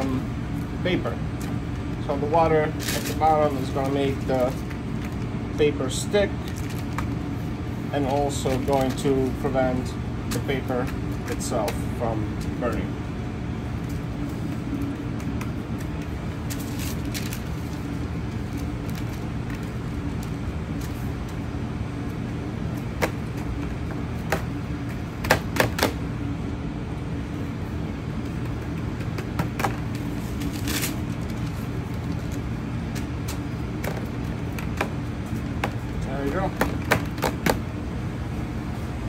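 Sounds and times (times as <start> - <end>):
steady machine hum: 0.0 - 39.0
parchment paper crinkling: 2.8 - 5.3, 8.0 - 9.1, 13.8 - 21.1.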